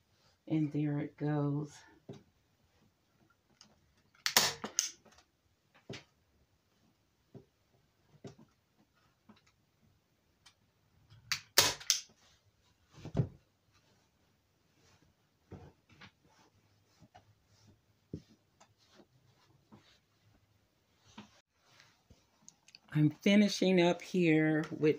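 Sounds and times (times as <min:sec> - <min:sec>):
staple gun snapping: 0:04.2 - 0:04.9, 0:11.3 - 0:12.1.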